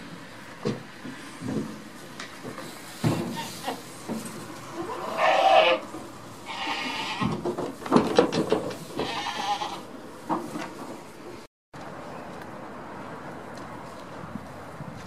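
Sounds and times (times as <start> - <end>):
goat bleating: 4.8 - 7.3, 9.0 - 9.9.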